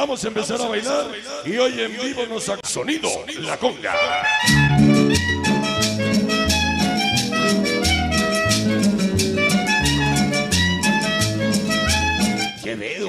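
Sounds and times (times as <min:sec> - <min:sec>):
salsa dance music: 0:03.8 - 0:12.7.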